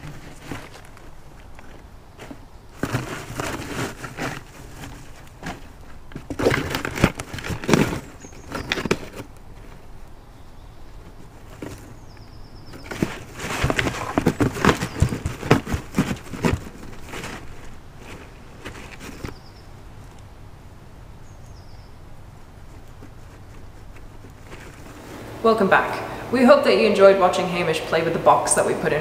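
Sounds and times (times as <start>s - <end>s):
cardboard crackling: 0.0s - 10.2s, 10.8s - 20.1s, 22.4s - 25.5s
straw rustling: 0.0s - 20.2s, 22.2s - 29.0s.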